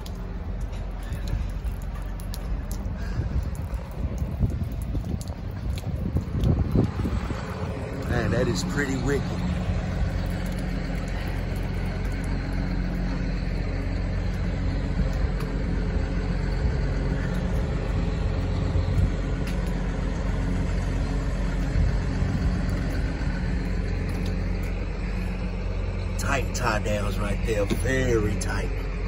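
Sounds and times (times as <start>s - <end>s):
truck diesel engine idling: 6.9s - 29.0s.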